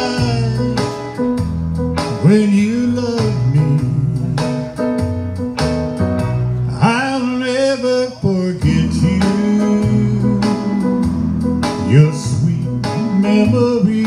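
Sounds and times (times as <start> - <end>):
man singing into a microphone: 0.0 - 1.3, 2.0 - 4.9, 6.7 - 14.0
guitar backing track: 0.0 - 14.0.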